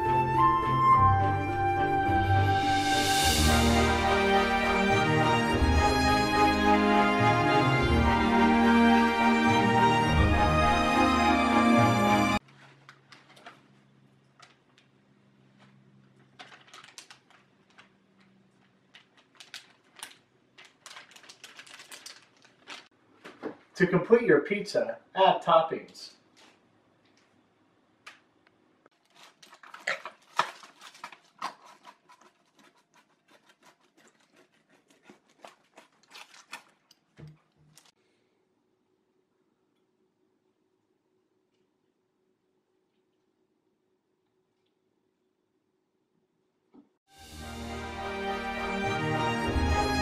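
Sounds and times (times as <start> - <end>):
music: 0.0 - 12.4, 47.1 - 50.0
cheese clicks and rustles: 12.4 - 23.8, 26.3 - 38.0
pizza cutter crunching through crust: 28.9 - 37.0.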